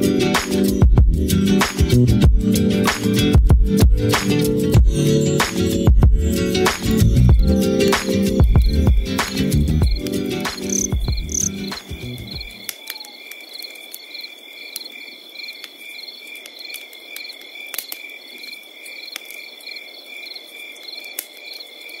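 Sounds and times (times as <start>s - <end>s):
low music: 0.0s - 12.4s
crickets chirping: 6.3s - 22.0s
steady high insect trill: 9.8s - 22.0s
faint clicks: 16.4s - 18.0s.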